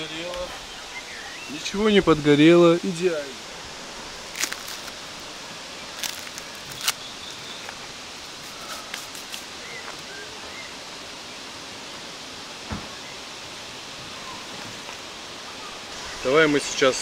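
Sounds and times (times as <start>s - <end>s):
steady outdoor hiss: 0.0s - 17.0s
soft thump: 12.7s - 12.9s.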